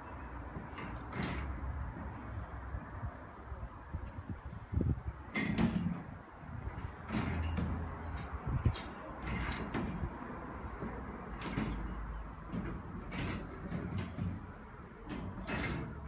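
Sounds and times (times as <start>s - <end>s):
foosball rods rattling: 9.2s - 16.0s.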